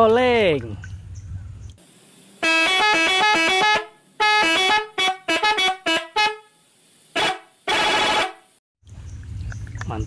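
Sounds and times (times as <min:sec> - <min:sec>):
musical truck air horn: 0:02.4 - 0:08.5.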